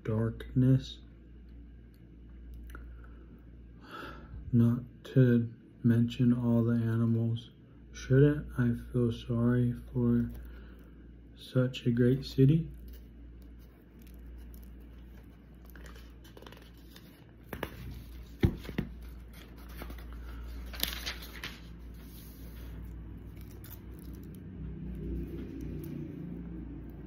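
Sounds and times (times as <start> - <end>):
steady low hum: 0.0 - 27.0
handling rustles and scrapes: 12.7 - 24.3.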